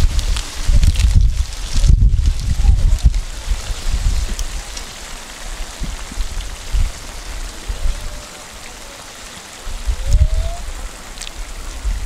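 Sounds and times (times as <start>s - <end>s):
dull low bumps: 0.0s - 4.9s, 5.7s - 8.2s.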